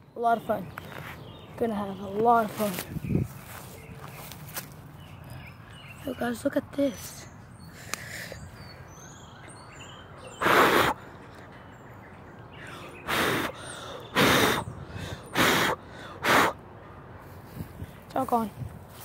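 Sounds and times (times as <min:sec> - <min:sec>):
birds chirping faintly: 0:00.0 - 0:19.0.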